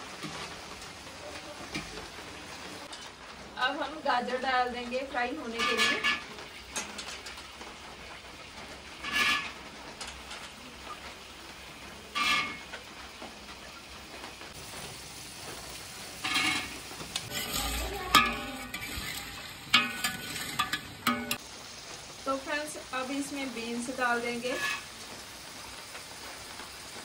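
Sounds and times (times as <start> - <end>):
vegetables sizzling in oil: 0.0 - 27.0
spatula stirring: 5.4 - 7.4, 15.5 - 21.4, 24.4 - 24.9.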